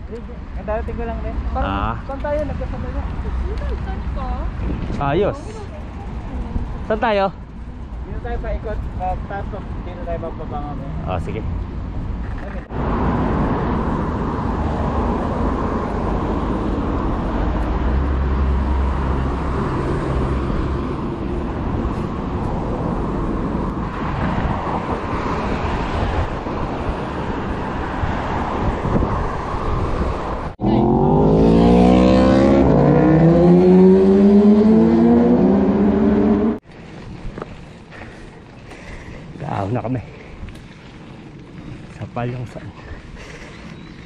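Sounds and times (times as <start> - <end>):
vehicle engine and road noise: 0.0 - 44.0
engine accelerating: 30.6 - 36.6.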